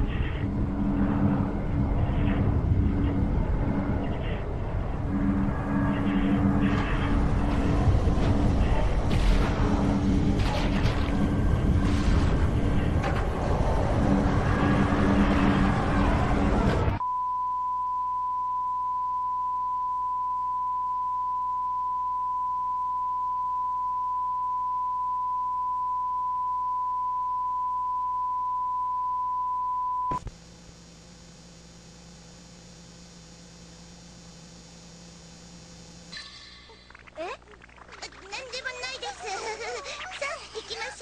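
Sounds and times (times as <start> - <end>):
loud noise: 0.0 - 17.0
faint low hum: 0.0 - 41.0
steady test tone beep: 17.0 - 30.2.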